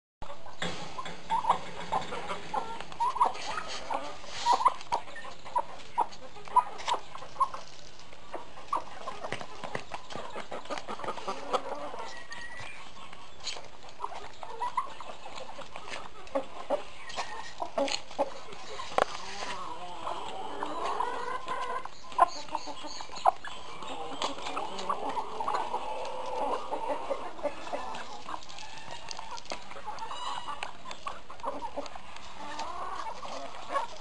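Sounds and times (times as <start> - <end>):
turkey and chickens clucking: 0.2 - 34.0.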